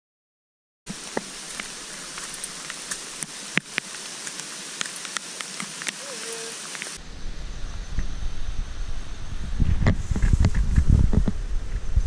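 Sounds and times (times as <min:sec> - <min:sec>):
rain falling on foliage: 0:00.9 - 0:07.0.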